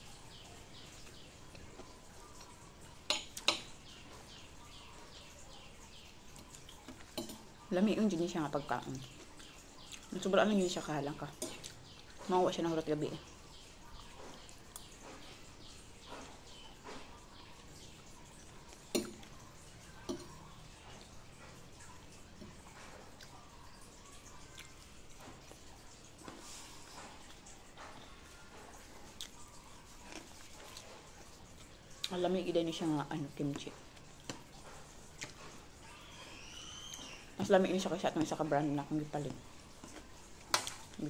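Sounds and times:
bird chirping: 0.0 - 25.2, 35.4 - 39.4
chewing and mouth noises: 0.2 - 7.7, 8.8 - 12.3, 13.3 - 32.3, 33.1 - 37.3, 39.4 - 41.0.

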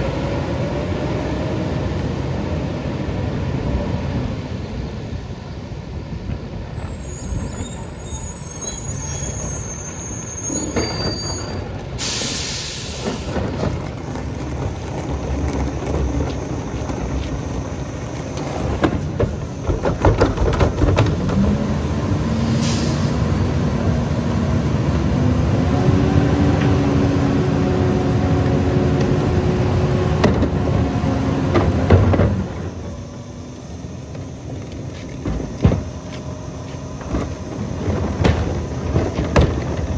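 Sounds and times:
air brake hisses: 7.0 - 13.4, 22.3 - 23.2
carts knocking against hopper: 13.0 - 21.6, 31.4 - 32.6, 35.0 - 36.2, 37.0 - 39.9.

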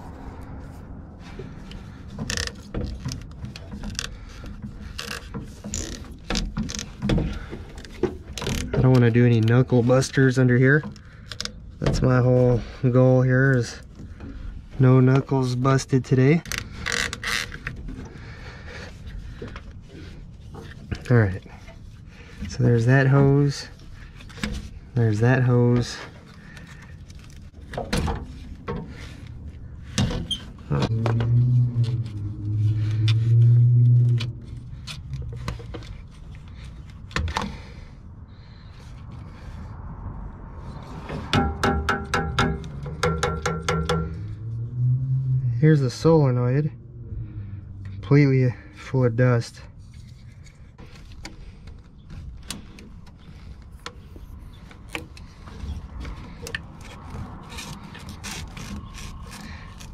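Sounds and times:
plastic rubbing and scraping: 0.0 - 12.7, 13.5 - 37.9, 48.9 - 59.9
steady low hum: 17.6 - 59.8
hard plastic clicks and scrapes: 49.8 - 59.9.

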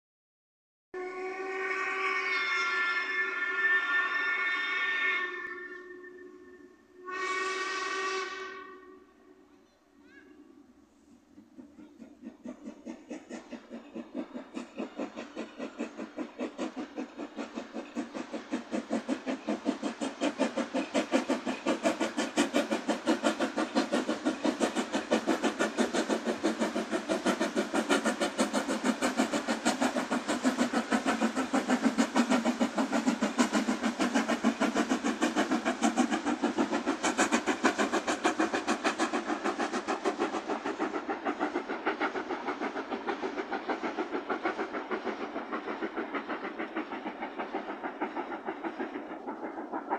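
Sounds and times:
steam locomotive chuffing: 1.0 - 49.9.

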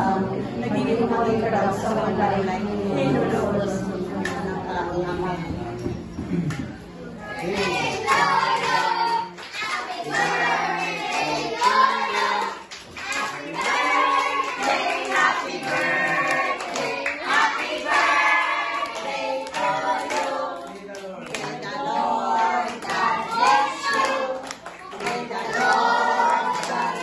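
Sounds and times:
group singing together: 0.0 - 5.0, 7.2 - 27.0
hands clapping: 11.0 - 18.1, 18.8 - 21.6, 22.7 - 25.8, 26.5 - 27.0.

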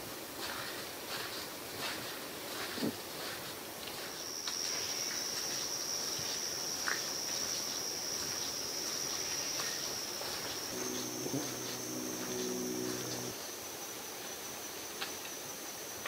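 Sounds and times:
insect trilling: 10.5 - 13.4.

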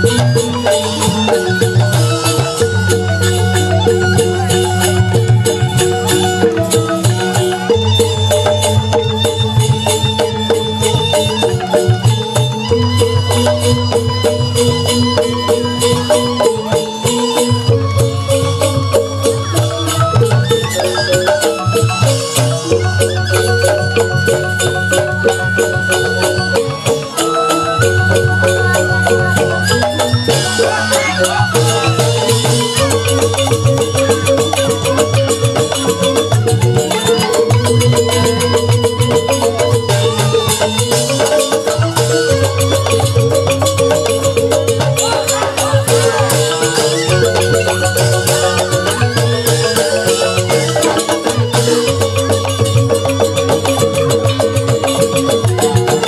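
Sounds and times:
bamboo flute: 0.0 - 56.0
hand drums: 0.0 - 56.0
metallophones struck in fast patterns: 0.0 - 56.0.

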